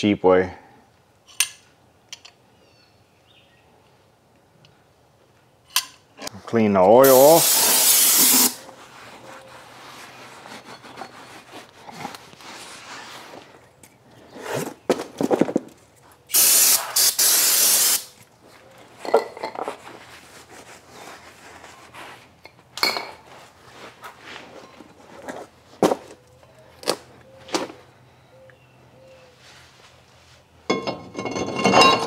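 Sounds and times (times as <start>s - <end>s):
aerosol spray burst: 7.0s - 8.6s, 16.3s - 18.1s
scraping and handling clatter: 8.3s - 16.2s, 18.2s - 26.2s, 30.7s - 32.0s.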